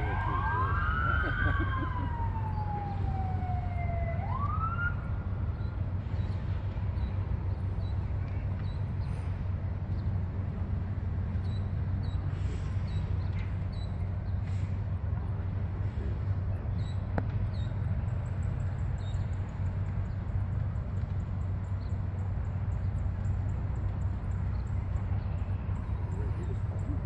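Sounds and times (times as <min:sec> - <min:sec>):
emergency siren wailing: 0:00.0 - 0:05.6.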